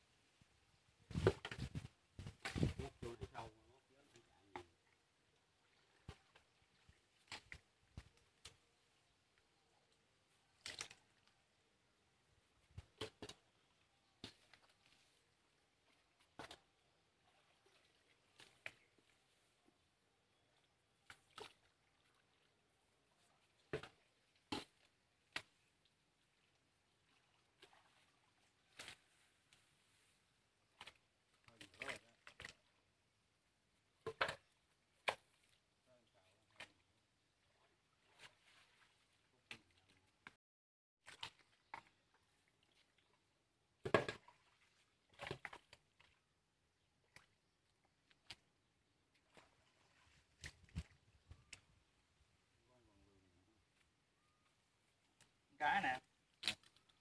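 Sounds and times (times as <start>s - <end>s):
mud squelching: 41.0s - 43.2s.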